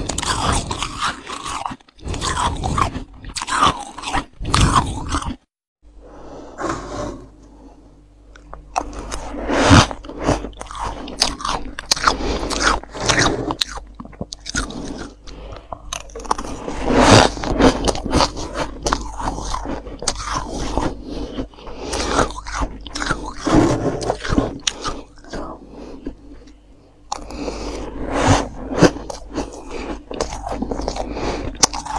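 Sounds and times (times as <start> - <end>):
frost being crunched by teeth: 9.8 - 15.2.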